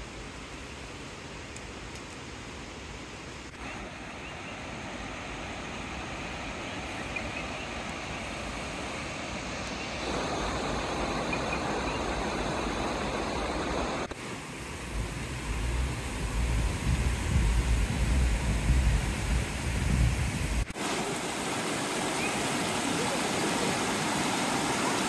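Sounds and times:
distant waterfall rushing: 0.0 - 25.0
wind rumble on microphone: 14.7 - 20.7.

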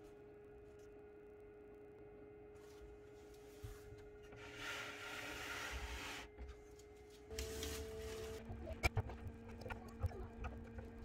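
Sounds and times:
incubator humming: 0.0 - 11.0.

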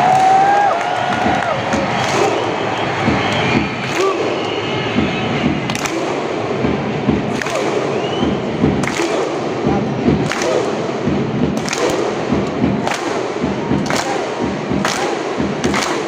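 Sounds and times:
bass drum beating: 0.0 - 16.0
massed clapping: 0.0 - 16.0
crowd chanting in unison: 1.5 - 5.1, 8.9 - 12.4, 13.0 - 16.0.

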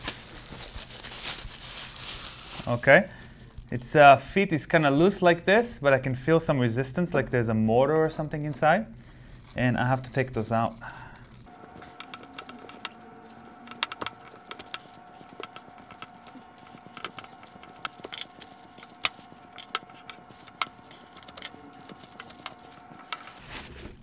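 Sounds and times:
faint steady hum: 0.0 - 24.0.

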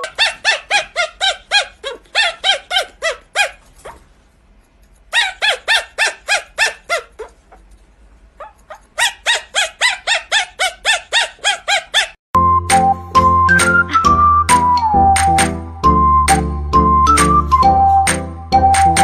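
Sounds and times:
puppy yapping: 0.0 - 4.1, 5.1 - 7.7, 8.4 - 12.2.

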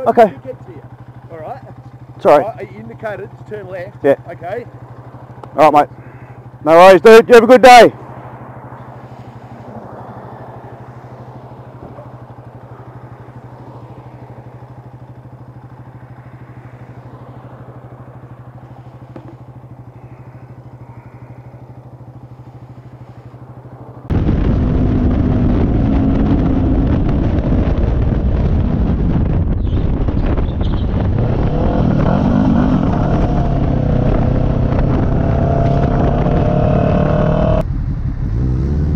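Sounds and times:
motorcycle engine running: 0.0 - 38.9
wind rushing over microphone: 24.1 - 38.9.

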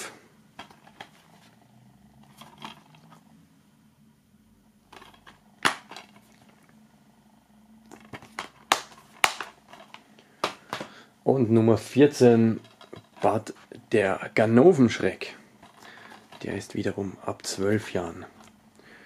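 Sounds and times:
faint steady hum: 0.0 - 19.0
plastic case clicks: 7.9 - 10.9.

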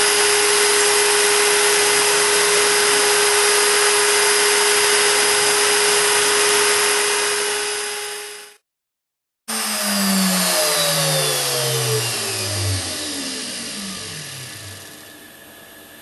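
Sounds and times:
router spindle whine: 0.0 - 8.6, 9.5 - 16.0.

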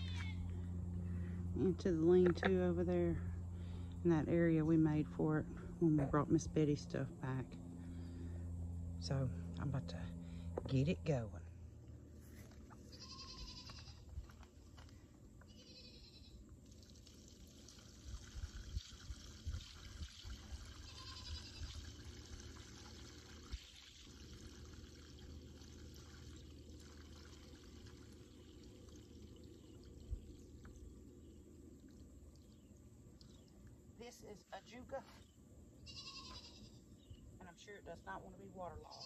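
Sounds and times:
water pouring and trickling: 16.6 - 33.7.

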